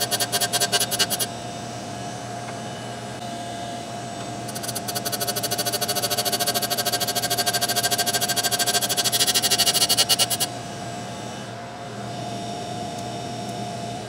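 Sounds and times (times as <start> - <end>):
wheel grinding steel blade: 0.0 - 1.3
grinder motor whine: 0.0 - 14.0.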